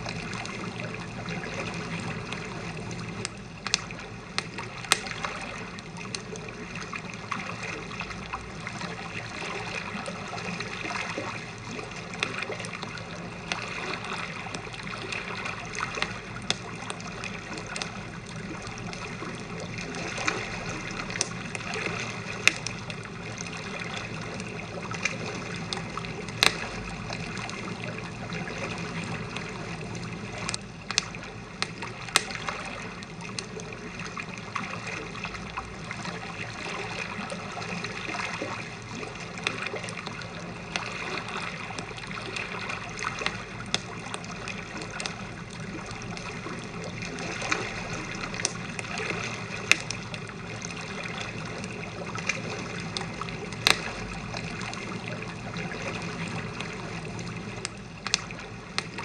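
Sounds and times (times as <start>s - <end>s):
waves lapping at shore: 0.0s - 59.0s
campfire crackling and popping: 3.2s - 5.2s, 20.8s - 21.6s, 22.4s - 22.9s, 24.4s - 27.3s, 30.4s - 32.4s, 48.3s - 48.9s, 49.6s - 50.2s, 53.0s - 54.0s, 57.6s - 59.0s.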